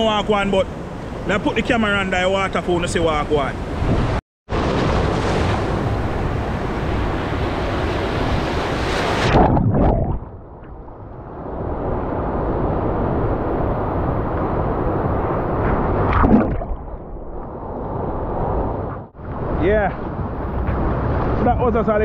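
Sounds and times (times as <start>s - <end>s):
sea surf washing: 0.0s - 9.4s
wind buffeting microphone: 3.6s - 22.0s.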